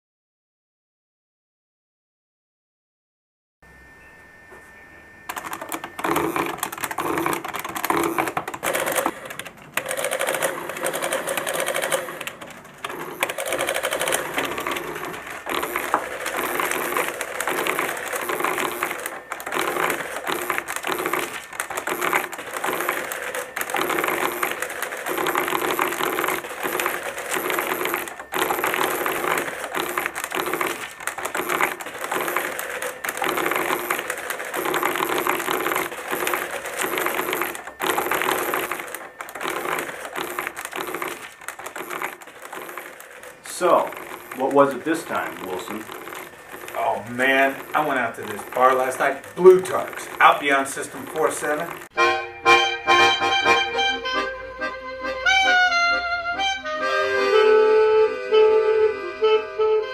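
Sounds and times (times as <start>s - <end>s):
printing calculator clattering: 5.3s - 52.0s.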